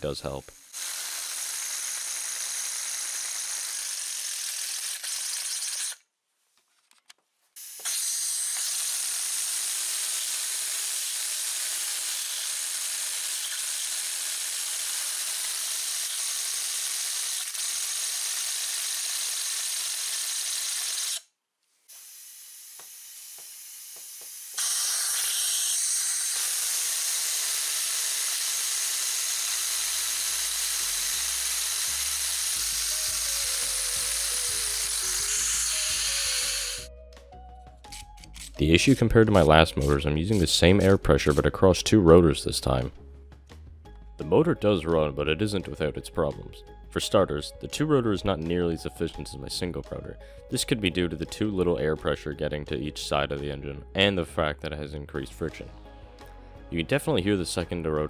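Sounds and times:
background music: 32.0s - 58.0s.

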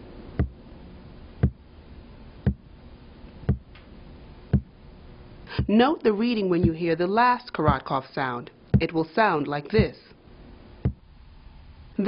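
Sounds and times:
pulse thumps through stethoscope: 0.4s - 0.6s, 1.4s - 1.6s, 2.4s - 2.7s, 3.5s - 3.8s, 4.5s - 4.8s, 7.7s - 7.9s, 8.8s - 9.0s, 9.7s - 10.0s, 10.8s - 11.1s.

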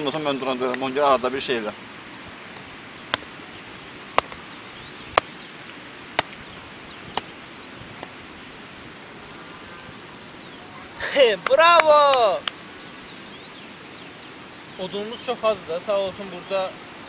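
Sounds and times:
hatchet chopping wood: 3.1s - 3.3s, 4.2s - 4.4s, 5.1s - 5.4s, 6.2s - 6.4s, 7.1s - 7.3s.

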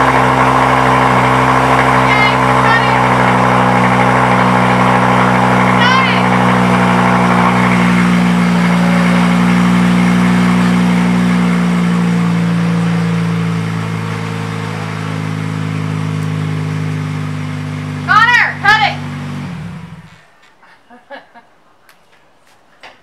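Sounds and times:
car engine idling loudly: 0.0s - 20.2s.

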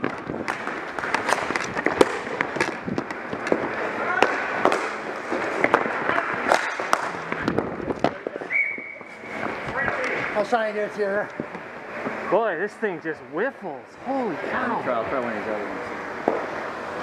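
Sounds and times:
hockey sticks clacking: 0.0s - 10.4s
ball hitting boards: 4.2s - 8.3s.

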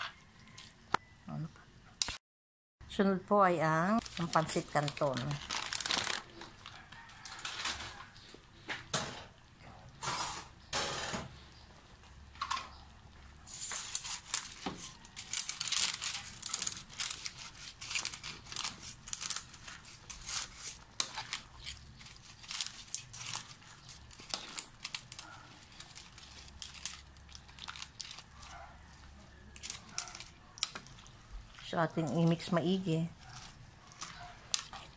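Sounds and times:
dry noodles rustling in a wok: 4.0s - 8.1s, 13.4s - 34.9s.

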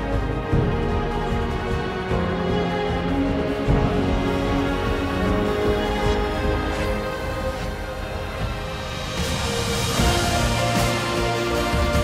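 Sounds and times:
background music sustained notes: 0.0s - 12.0s.

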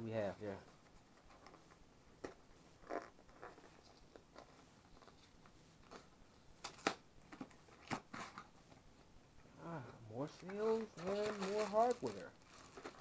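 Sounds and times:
cardboard crunching: 10.4s - 13.0s
cardboard rustling and clicking: 10.4s - 13.0s.

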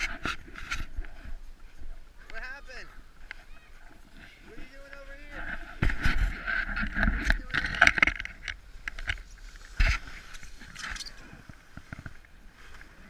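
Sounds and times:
branches brushing and crackling: 0.0s - 13.0s
sled scraping over snow: 3.4s - 8.4s.

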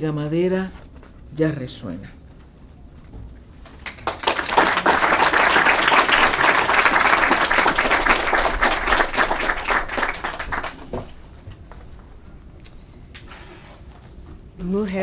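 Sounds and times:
audience applauding: 3.6s - 11.3s.

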